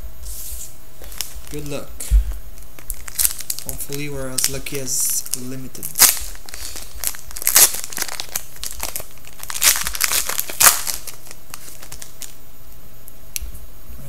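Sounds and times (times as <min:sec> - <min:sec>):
card pack wrapper crinkling and tearing: 0:01.0 - 0:01.8, 0:02.6 - 0:12.4.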